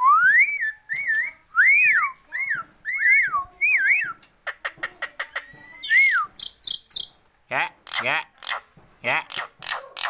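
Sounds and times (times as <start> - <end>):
bird whistling: 0.0 - 4.2, 5.3 - 7.2.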